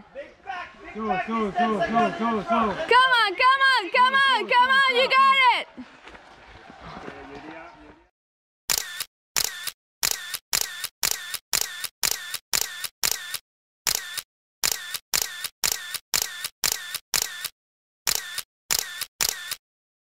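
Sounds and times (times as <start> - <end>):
camera shutter clicking: 8.7 - 17.5, 18.1 - 19.6.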